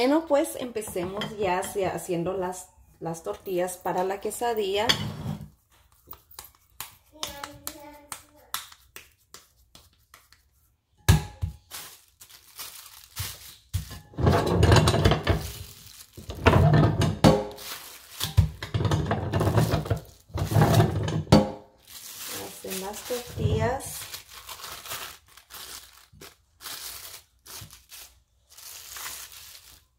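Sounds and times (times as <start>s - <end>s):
plastic sheet crinkling: 11.6s - 18.6s, 19.3s - 21.1s, 21.7s - 29.9s.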